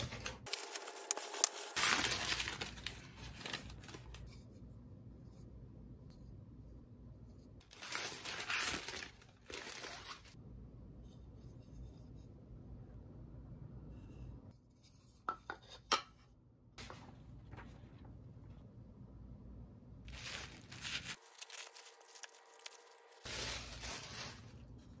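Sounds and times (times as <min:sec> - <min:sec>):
tissue paper rustling: 0:00.0 - 0:04.3, 0:07.7 - 0:10.4, 0:20.1 - 0:24.9.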